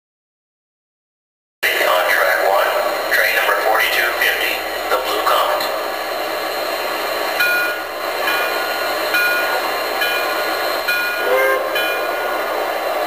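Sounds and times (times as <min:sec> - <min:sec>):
locomotive bell ringing: 0:07.3 - 0:13.0.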